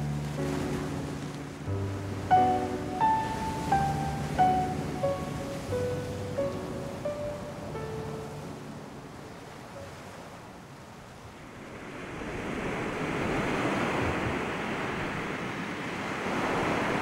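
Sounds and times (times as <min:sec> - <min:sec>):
sea waves breaking: 0:00.0 - 0:17.0.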